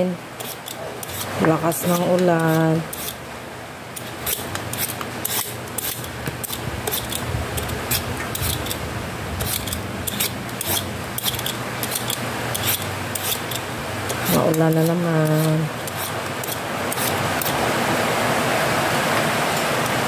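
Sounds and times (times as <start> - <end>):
vegetable peeler rasping on papaya: 0.4 - 3.2, 4.0 - 8.8, 9.4 - 17.6.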